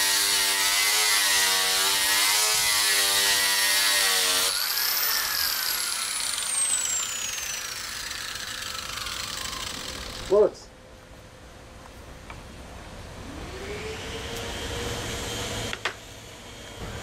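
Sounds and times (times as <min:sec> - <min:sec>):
angle grinder grinding: 0:00.0 - 0:10.4
grinder disc spinning down: 0:04.3 - 0:10.3.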